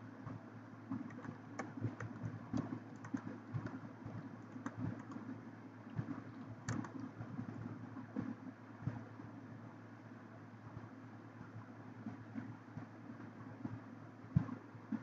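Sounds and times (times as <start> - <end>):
steady low hum: 0.0 - 15.0
keyboard typing: 0.9 - 5.4, 6.0 - 7.3.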